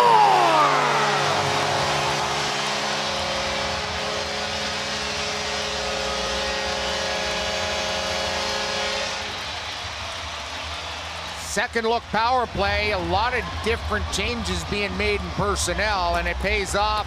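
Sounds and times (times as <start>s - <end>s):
arena goal horn: 0.0s - 9.6s
crowd cheering: 0.0s - 17.0s.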